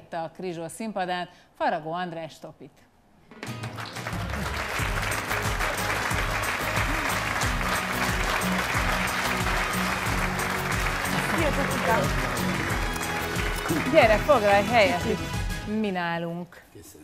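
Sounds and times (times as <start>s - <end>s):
studio audience applauding: 3.4s - 15.6s
walk-on music: 3.5s - 15.7s.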